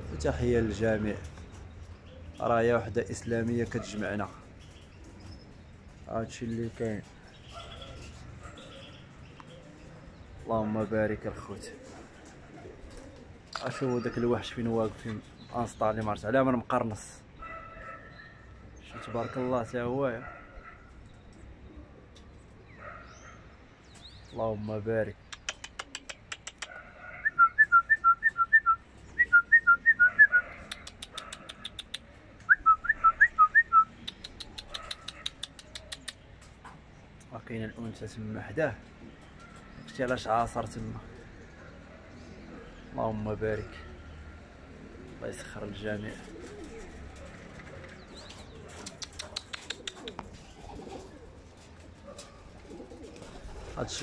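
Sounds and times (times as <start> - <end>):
pigeons cooing: 0.0 - 16.0, 17.3 - 24.2, 25.2 - 37.2, 38.5 - 54.0
sharp clicks: 25.2 - 26.8, 30.6 - 32.1, 34.0 - 36.3, 48.8 - 50.4.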